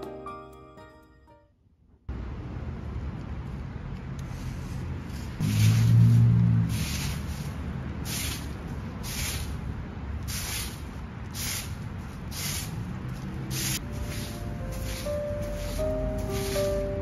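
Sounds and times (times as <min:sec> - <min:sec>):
soft music: 0:00.0 - 0:01.6, 0:13.8 - 0:17.0
broom sweeping leaves: 0:04.3 - 0:17.0.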